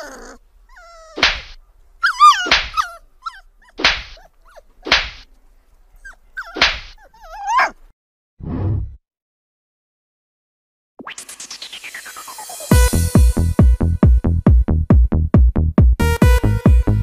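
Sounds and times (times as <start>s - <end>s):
dog whining and yelping: 0.0s - 5.2s, 5.9s - 7.9s, 12.1s - 12.7s
cat slapping dog: 1.2s - 1.6s, 2.4s - 2.9s, 3.8s - 5.3s, 6.5s - 7.0s.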